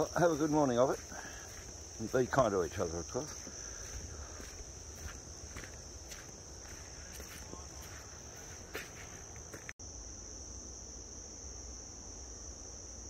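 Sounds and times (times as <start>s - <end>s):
footsteps crunching in leaf litter: 0.0s - 9.7s
insect chorus drone: 0.0s - 13.0s.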